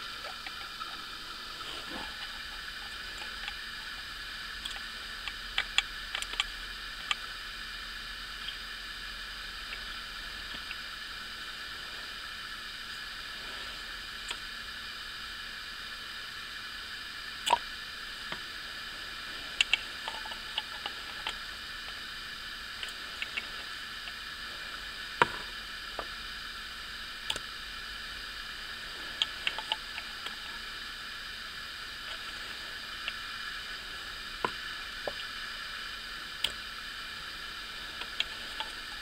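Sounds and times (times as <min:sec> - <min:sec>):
steady hiss: 0:00.0 - 0:39.0
syringe clicks and knocks: 0:01.8 - 0:07.3.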